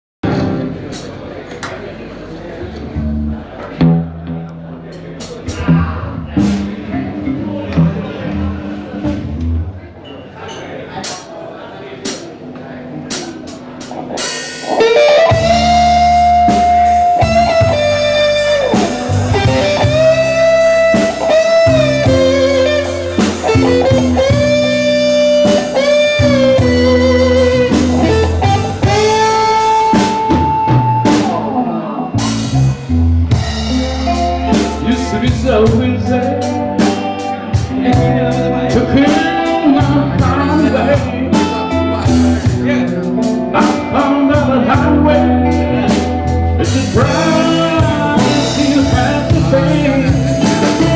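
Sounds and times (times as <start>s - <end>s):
electric guitar bending notes: 0.2s - 1.0s, 13.6s - 50.9s
blues band playing: 0.2s - 10.0s, 12.0s - 50.9s.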